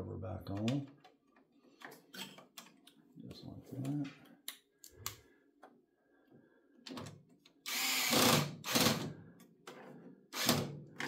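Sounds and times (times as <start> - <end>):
electric screwdriver running: 7.7 - 9.0.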